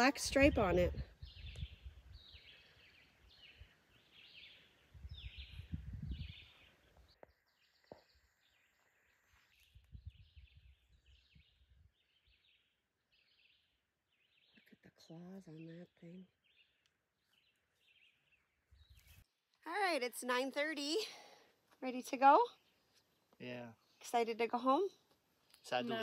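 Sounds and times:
bird chirping: 0:00.0 - 0:19.4.

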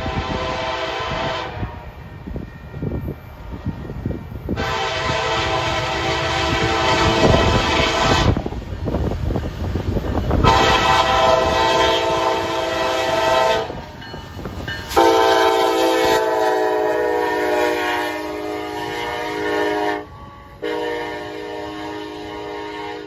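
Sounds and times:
locomotive air horn blasts: 0:00.0 - 0:02.0, 0:04.6 - 0:08.5, 0:10.4 - 0:14.0, 0:14.9 - 0:23.0
diesel locomotive rumble: 0:00.0 - 0:23.0.

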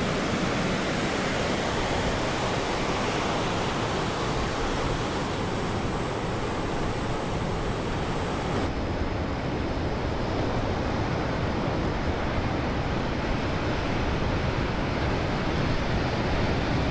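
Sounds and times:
ocean surf breaking: 0:00.0 - 0:08.7.

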